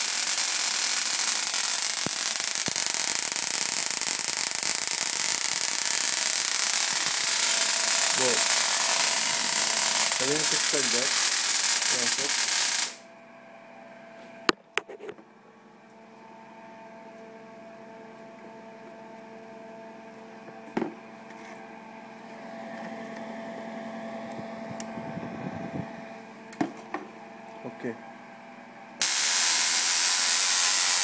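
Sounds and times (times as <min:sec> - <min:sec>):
electric fan humming: 0:00.0 - 0:15.2, 0:22.1 - 0:27.8.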